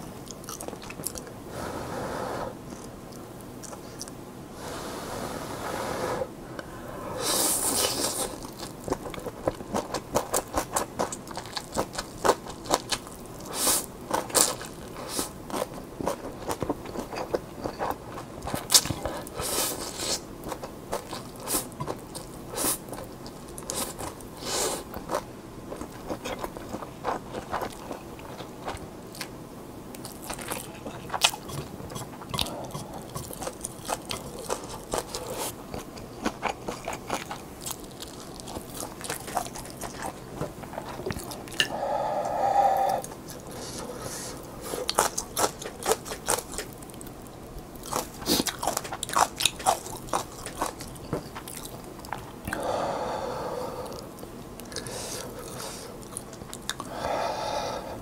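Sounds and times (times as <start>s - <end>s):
wet chewing and lip-smacking: 24.9s - 29.3s, 29.9s - 41.7s, 44.8s - 52.7s, 53.9s - 56.9s.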